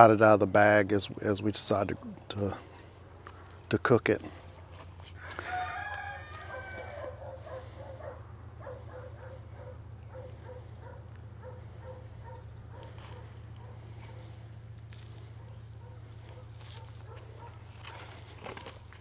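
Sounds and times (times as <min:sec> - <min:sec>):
steady low hum: 0:00.0 - 0:19.0
rooster crowing: 0:05.2 - 0:08.8.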